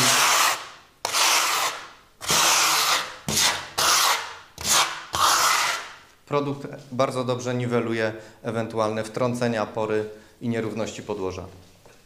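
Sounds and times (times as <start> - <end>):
steel trowel scraping plaster: 0.0 - 5.9.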